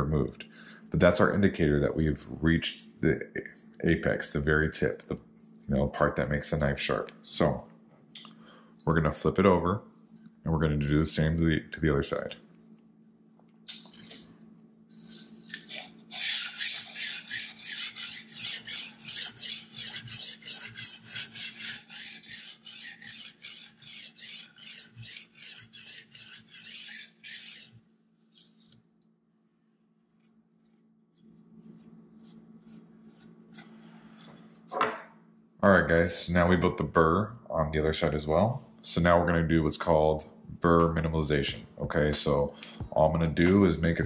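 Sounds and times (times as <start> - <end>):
sharpening stone scraping knife: 14.9 - 28.8, 30.2 - 33.8.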